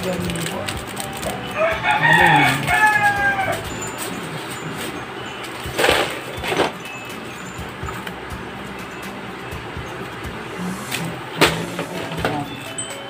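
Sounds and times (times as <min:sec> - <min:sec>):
rooster crowing: 0:01.4 - 0:03.8.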